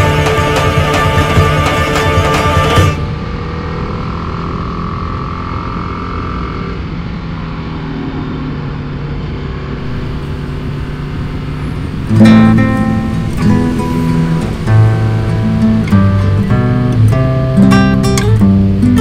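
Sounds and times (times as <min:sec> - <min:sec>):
guitar music: 0:00.0 - 0:03.2, 0:09.8 - 0:19.0
motorcycle engine running: 0:00.0 - 0:07.0, 0:09.8 - 0:13.8
road and wind noise: 0:00.0 - 0:19.0.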